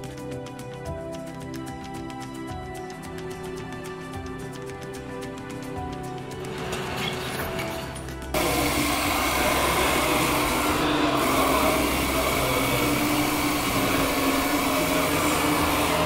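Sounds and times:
model excavator hydraulic whine: 8.4s - 16.0s.

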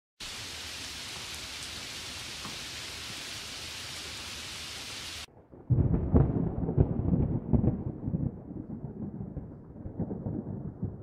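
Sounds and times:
heavy rain hissing: 0.2s - 5.3s
thunder rumbling and cracking: 5.3s - 11.0s.

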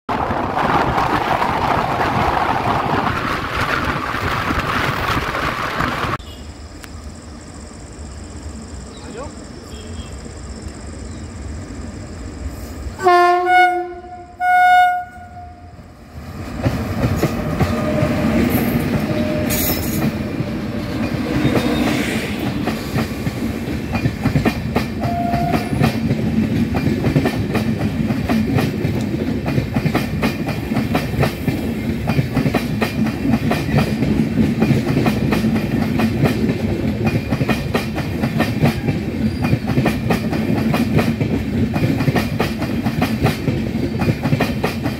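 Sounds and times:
train rumbling past: 0.1s - 44.9s
locomotive air horn blasts: 13.0s - 15.7s, 25.0s - 25.8s.

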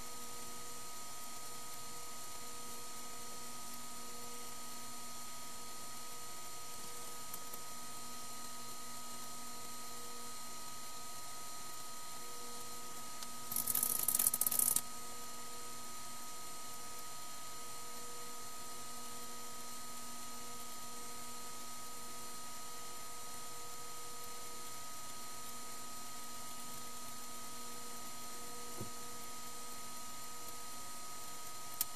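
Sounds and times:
computer hum and fan whir: 0.0s - 31.9s
rapid crackly clicking: 13.2s - 14.9s.

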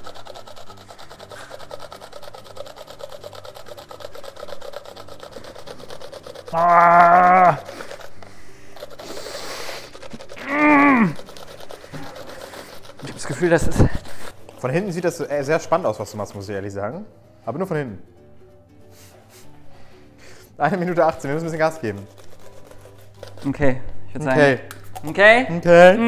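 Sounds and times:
cucumber rasping on grater: 0.0s - 16.7s, 20.8s - 24.0s.

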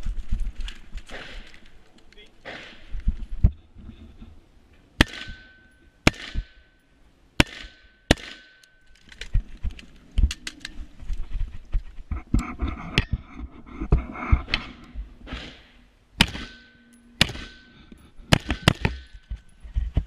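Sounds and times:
rifle shots: 2.4s - 2.9s, 5.0s - 6.6s, 7.4s - 8.6s, 15.3s - 16.6s, 17.2s - 17.6s, 18.3s - 19.2s.

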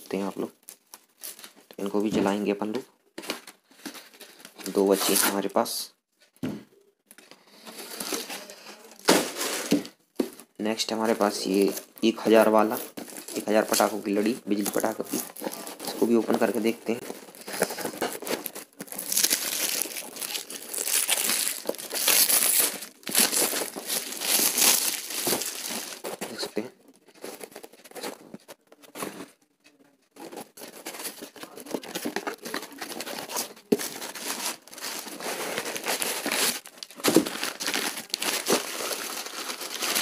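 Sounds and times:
paper crinkling and tearing: 11.2s - 29.3s, 30.2s - 40.0s.

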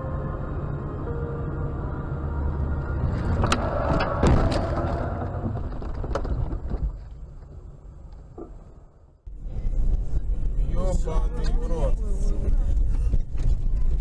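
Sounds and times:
road noise inside car: 0.0s - 14.0s
car crash bangs and crunches: 3.2s - 7.1s.

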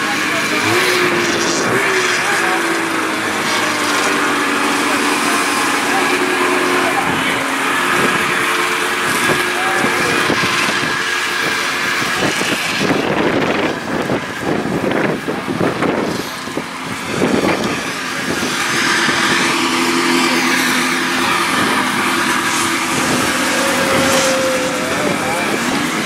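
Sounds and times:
snowmobile engine running: 0.0s - 26.0s.

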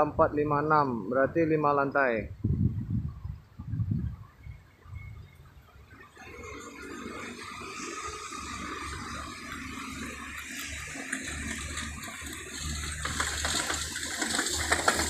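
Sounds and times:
wind buffeting microphone: 2.2s - 5.6s
steady rushing hiss: 5.8s - 15.0s.

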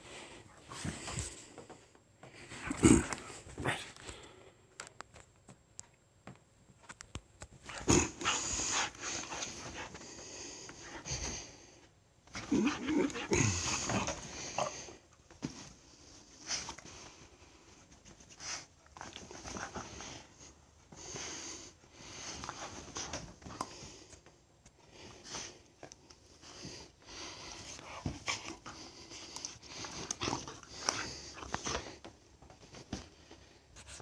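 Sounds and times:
dog panting: 26.4s - 32.0s.

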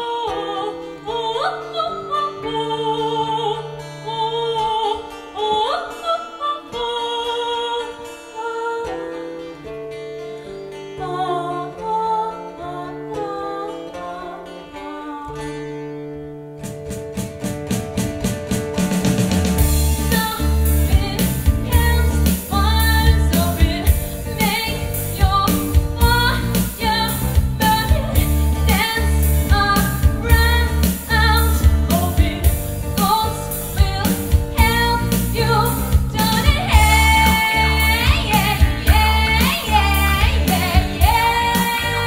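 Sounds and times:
woman singing: 0.0s - 9.4s, 10.9s - 15.8s, 20.0s - 42.0s
music with beat and deep bass: 35.8s - 42.0s.

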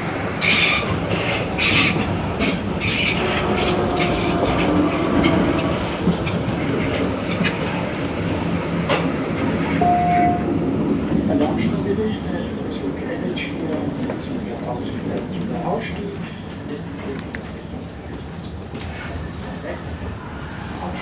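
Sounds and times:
train wheels clattering over rail joints: 0.4s - 8.0s.

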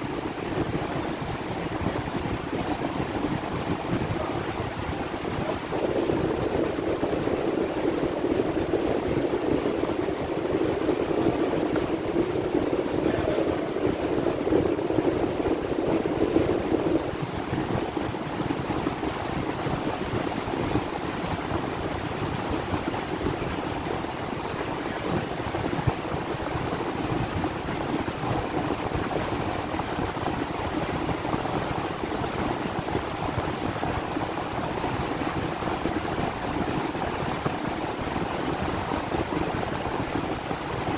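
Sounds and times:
fan hum: 0.0s - 40.9s.

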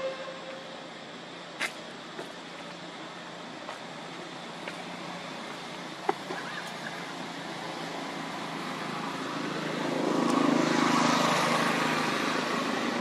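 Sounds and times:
motor vehicle passing: 4.8s - 13.0s.

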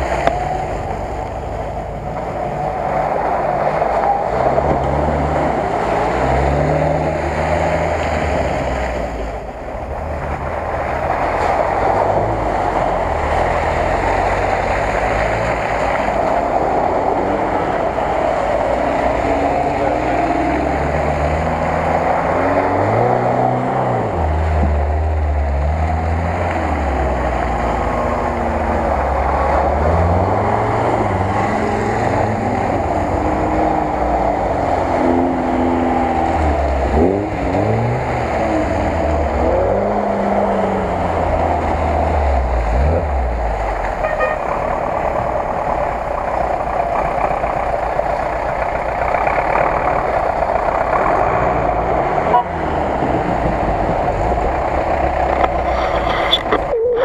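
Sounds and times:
off-road vehicle engines revving: 0.0s - 57.0s.

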